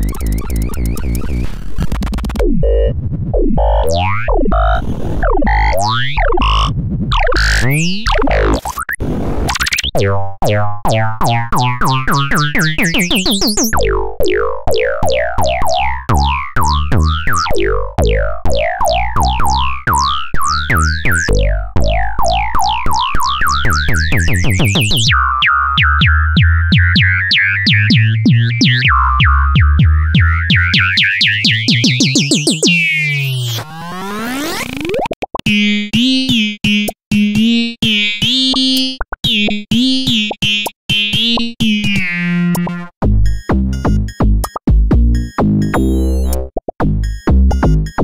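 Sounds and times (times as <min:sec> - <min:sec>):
synthesized electronic tones: 0:00.0 - 0:35.5.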